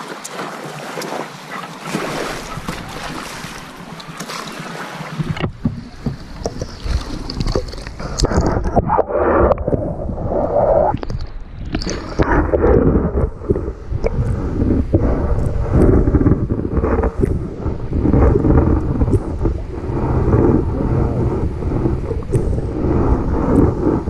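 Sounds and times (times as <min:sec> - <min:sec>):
sea water sloshing and splashing: 0:00.0 - 0:24.0
muffled underwater thumps: 0:02.4 - 0:10.2.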